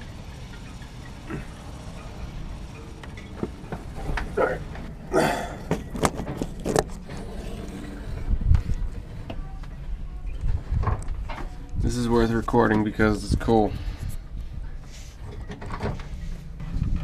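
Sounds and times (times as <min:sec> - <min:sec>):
camera handling knocks and clicks: 0:05.7 - 0:06.9
wind rumble on microphone: 0:05.9 - 0:14.9, 0:15.6 - 0:17.0.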